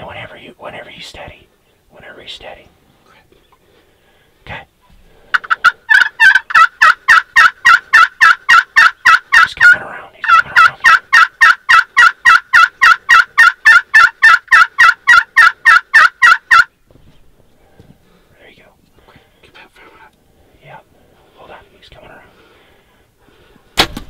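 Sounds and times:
turkey yelping: 5.3 - 16.8.

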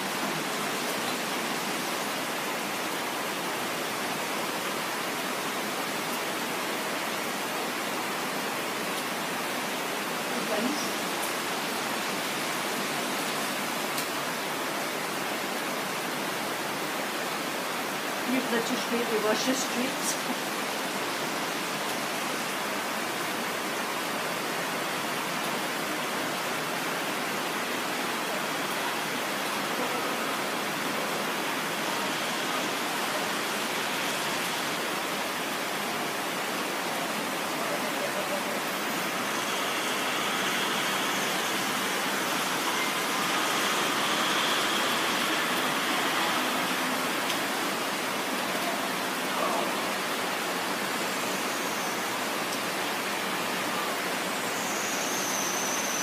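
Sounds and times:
rain falling: 0.0 - 56.0.

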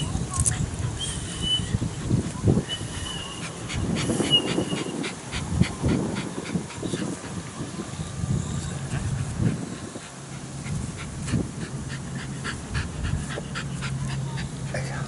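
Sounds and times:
dog panting: 3.2 - 7.5, 8.8 - 15.0.

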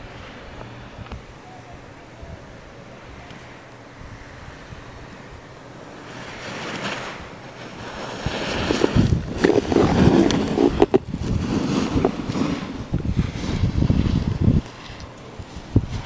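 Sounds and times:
wind buffeting the microphone: 0.0 - 16.0
snowboard edge scraping snow: 5.9 - 16.0.

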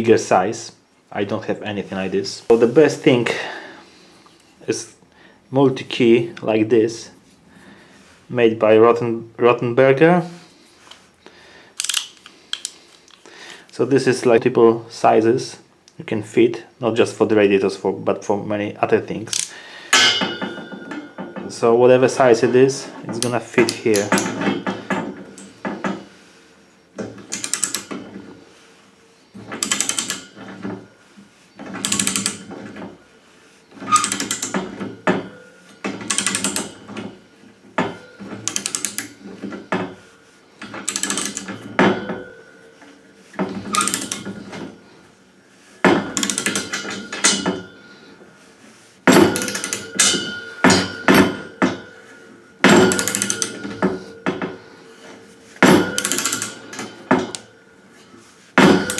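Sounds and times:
ratchet handle clicking: 11.8 - 13.2, 27.3 - 28.0, 29.6 - 30.2, 31.8 - 32.4, 33.9 - 34.6, 36.1 - 36.7, 38.4 - 39.2, 40.8 - 41.6, 43.7 - 44.2, 46.2 - 47.4, 49.2 - 50.2, 52.7 - 53.8, 55.8 - 57.5, 58.6 - 58.9.

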